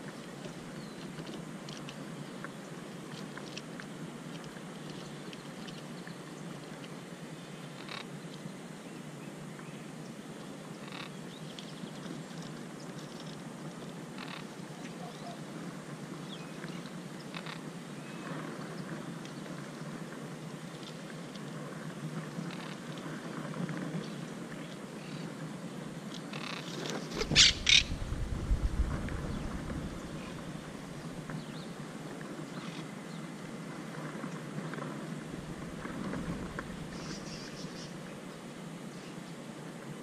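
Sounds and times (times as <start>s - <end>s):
parakeets calling: 27.2s - 28.0s
deep rumble: 27.2s - 31.4s.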